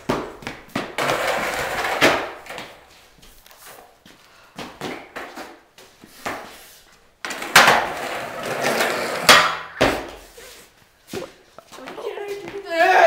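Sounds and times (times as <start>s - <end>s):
skateboard deck hitting floor: 0.0s - 2.9s, 4.6s - 6.5s, 7.2s - 10.3s
skateboard wheels rolling on concrete: 0.0s - 4.2s, 4.8s - 10.7s.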